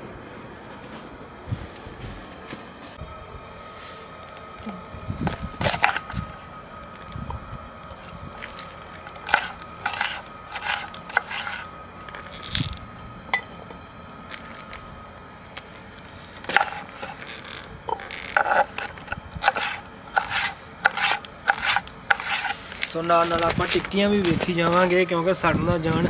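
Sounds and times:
knife chopping on wooden board: 0:09.2 - 0:11.6, 0:18.4 - 0:22.5.

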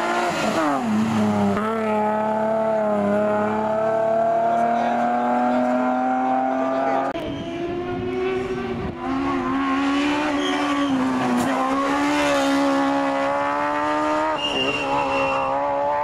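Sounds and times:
race car engine at high revs: 0:00.0 - 0:16.0.

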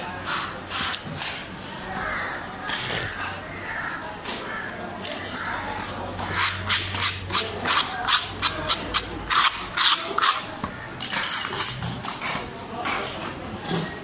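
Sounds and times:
scraping on wet wooden block: 0:06.1 - 0:12.5.

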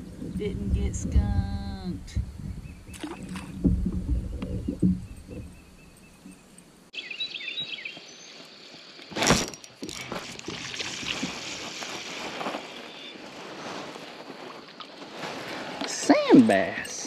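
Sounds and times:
bird chirps: 0:04.5 - 0:08.6.

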